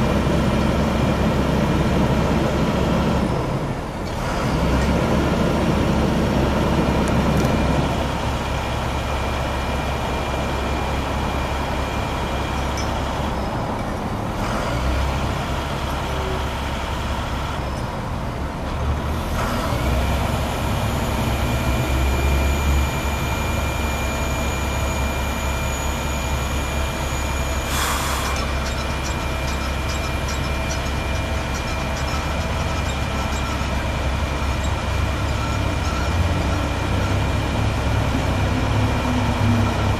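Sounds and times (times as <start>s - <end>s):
diesel engine running: 0.0s - 39.9s
steady high tone: 20.7s - 38.0s.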